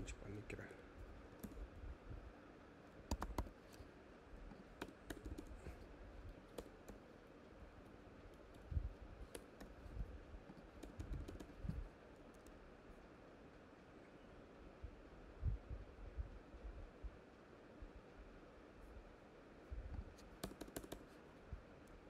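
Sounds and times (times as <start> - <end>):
keyboard typing: 1.4 - 1.6, 2.9 - 3.8, 4.5 - 7.2, 8.2 - 12.6, 20.2 - 21.2.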